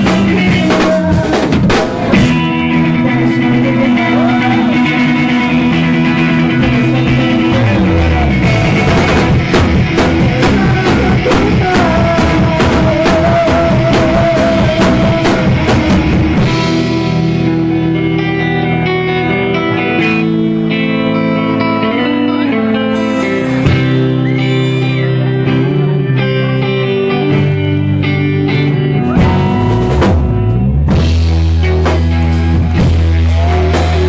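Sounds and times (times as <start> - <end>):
drum kit with cymbal hits: 0.0 - 17.5, 22.9 - 25.2, 29.0 - 34.0
bass guitar: 0.0 - 34.0
electric guitar: 0.0 - 34.0.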